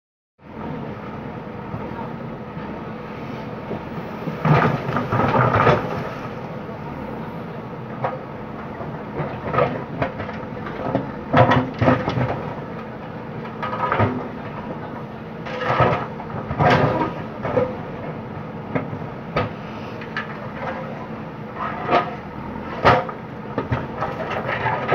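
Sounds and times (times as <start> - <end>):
diesel engine running: 0.4 - 24.9
bucket scraping and clattering rubble: 4.3 - 6.3, 9.2 - 12.6, 15.4 - 17.8, 20.0 - 24.9.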